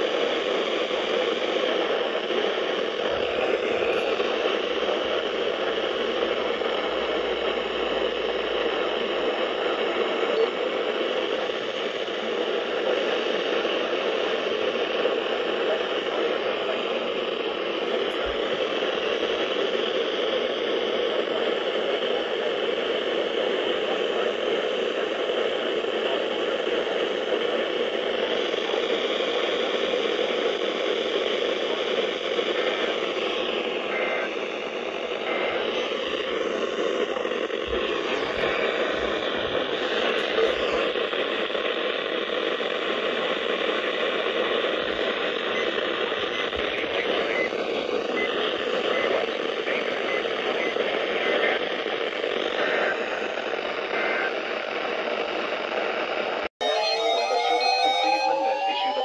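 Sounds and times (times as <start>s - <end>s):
radio static hiss: 0.0s - 59.0s.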